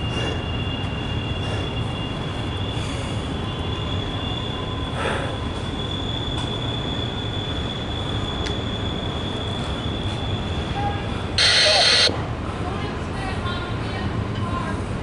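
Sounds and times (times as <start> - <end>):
high-pitched wheel squeal: 5.7 - 12.1.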